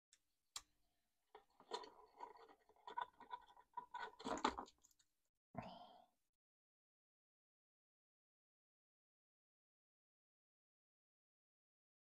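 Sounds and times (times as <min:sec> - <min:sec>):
plastic clicks and rattles: 0:01.4 - 0:05.0.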